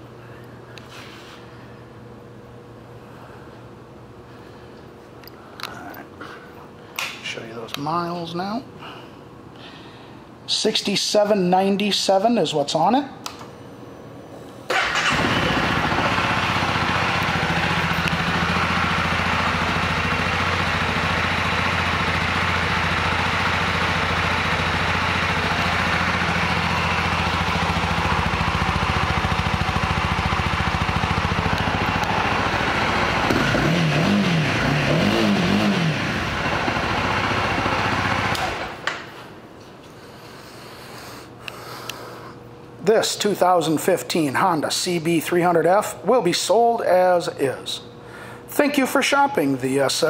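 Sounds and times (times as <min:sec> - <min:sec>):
motorcycle engine idling and revving: 0:14.7 - 0:38.9.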